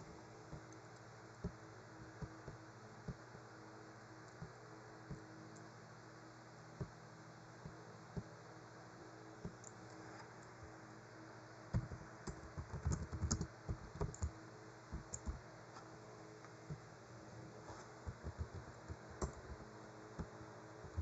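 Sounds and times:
faint low hum: 0:00.0 - 0:21.0
keyboard keystrokes: 0:11.8 - 0:14.3, 0:18.1 - 0:21.0.

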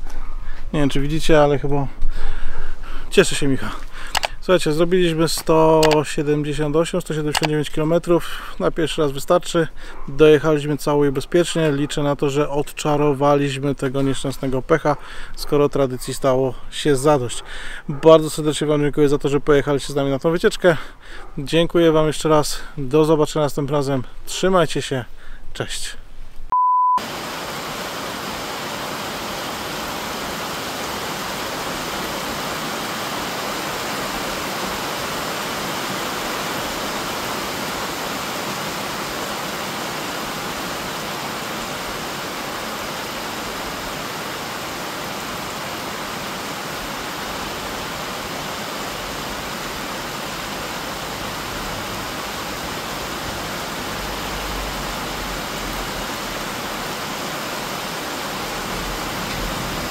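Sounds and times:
heavy rain on pavement: 0:27.0 - 0:59.9.

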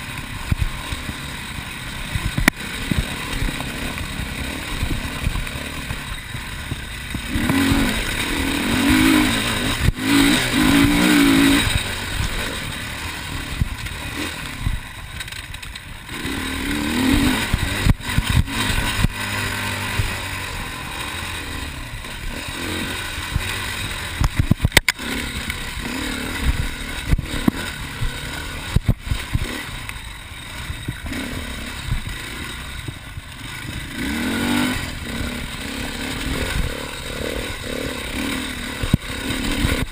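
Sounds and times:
dirt bike engine revving: 0:00.0 - 0:39.9
sharp knocks and clatter: 0:02.1 - 0:12.3, 0:13.5 - 0:20.2, 0:23.2 - 0:25.6, 0:26.4 - 0:30.0.

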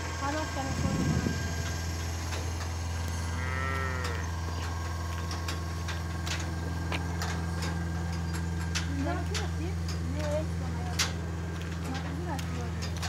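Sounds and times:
low hum: 0:00.0 - 0:11.8
cow mooing: 0:03.1 - 0:04.4.

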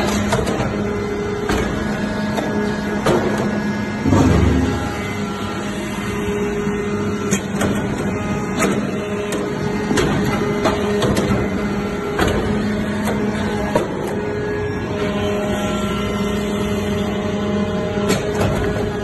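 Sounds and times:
hydraulic unit humming: 0:00.0 - 0:19.0
heavy thump: 0:04.0 - 0:05.0
machine clicks and knocks: 0:07.3 - 0:11.5.

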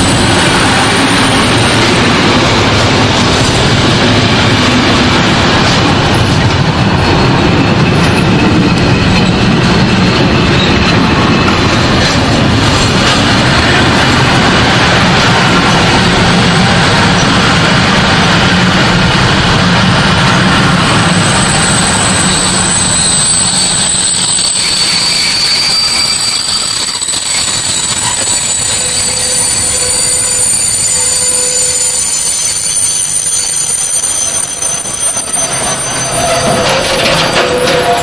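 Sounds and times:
freight train wheels rumbling: 0:00.0 - 0:38.0
high wheel squeals: 0:20.6 - 0:38.0.

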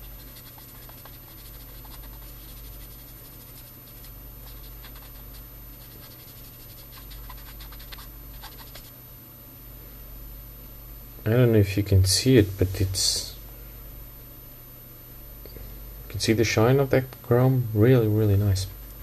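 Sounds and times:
cotton swab scratching: 0:00.0 - 0:09.0.

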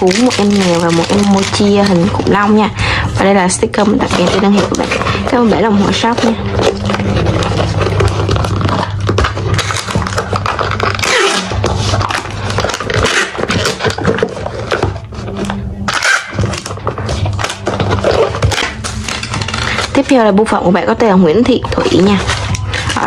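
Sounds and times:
packing tape ripping: 0:00.0 - 0:02.5, 0:03.8 - 0:15.1, 0:15.9 - 0:20.4.

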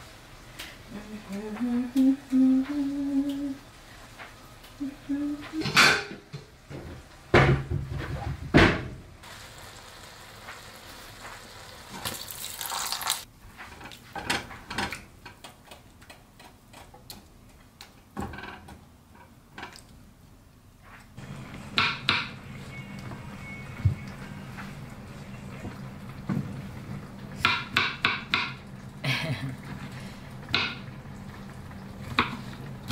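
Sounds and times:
low steady hum: 0:00.4 - 0:06.3
spatula and cookware clattering: 0:05.6 - 0:08.2.

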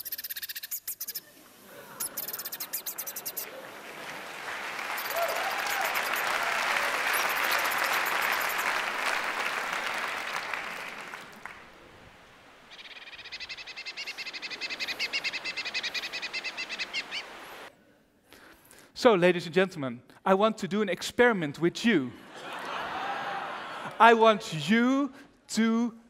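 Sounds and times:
bird trilling song: 0:00.0 - 0:01.3, 0:02.0 - 0:03.5, 0:07.1 - 0:08.6, 0:12.7 - 0:17.7
audience laughing: 0:01.4 - 0:11.9, 0:22.2 - 0:24.2
audience applauding: 0:02.1 - 0:12.6.

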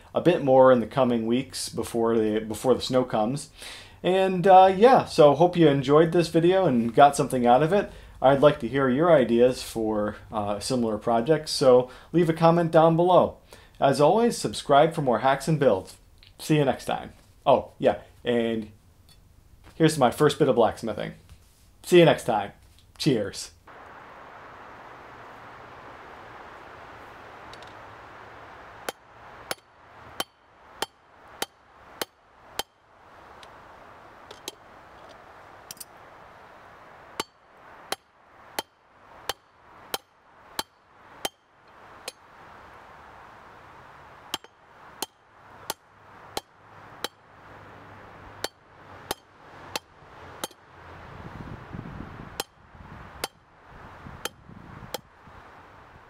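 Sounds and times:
steady rush of air: 0:03.5 - 0:04.1, 0:07.8 - 0:08.2, 0:23.7 - 0:56.0.

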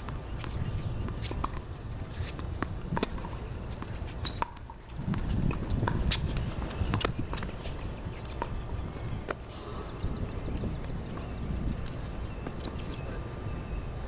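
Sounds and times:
shoes scuffing on court: 0:00.0 - 0:09.8
tennis ball hitting racket and court: 0:00.0 - 0:13.0.

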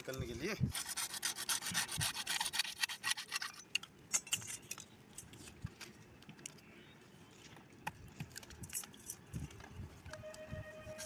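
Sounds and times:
knife scraping plastic pipe: 0:00.6 - 0:03.9.

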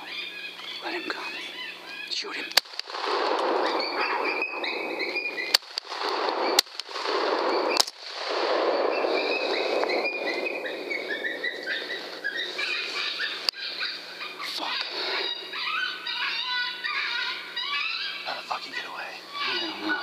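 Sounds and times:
high wavering animal cries: 0:00.0 - 0:02.5, 0:03.4 - 0:05.6, 0:08.8 - 0:20.0
rifle shots: 0:02.5 - 0:10.9
rushing noise: 0:02.9 - 0:12.6.

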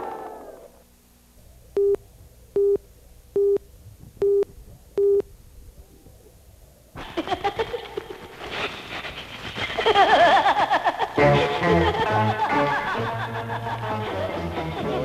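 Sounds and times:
short beeps: 0:01.8 - 0:02.0, 0:02.6 - 0:02.8, 0:03.4 - 0:05.3.

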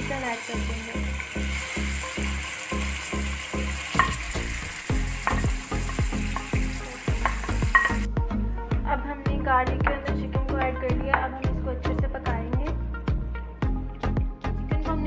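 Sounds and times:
chicken sizzling in a frying pan: 0:00.0 - 0:08.1
background music with bass beat: 0:04.9 - 0:15.0.

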